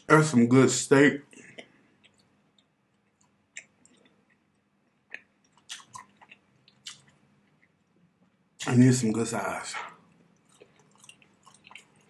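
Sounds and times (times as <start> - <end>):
person chewing: 1.3 - 8.4, 10.0 - 12.0.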